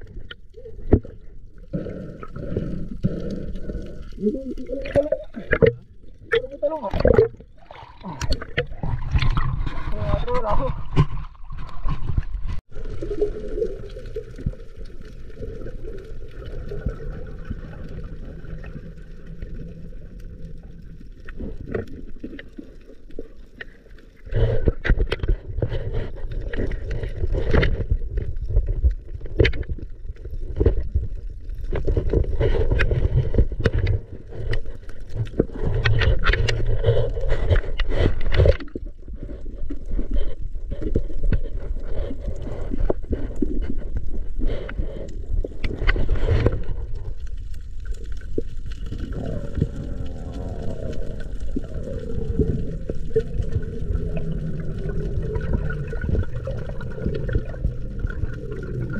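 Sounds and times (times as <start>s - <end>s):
water sloshing and gurgling: 0.0s - 58.9s
knocks and scrapes: 8.0s - 12.7s, 24.2s - 47.6s.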